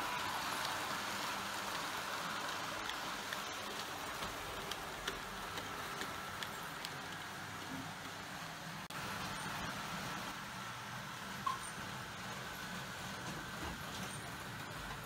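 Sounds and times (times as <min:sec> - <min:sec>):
model train wheels hissing on rails: 0:00.0 - 0:15.0
light track clicks: 0:02.8 - 0:08.2.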